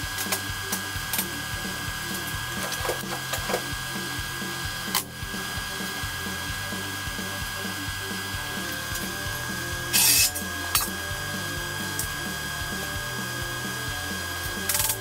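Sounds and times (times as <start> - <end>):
background music: 0.0 - 15.0
welding crackling burst: 8.0 - 10.9.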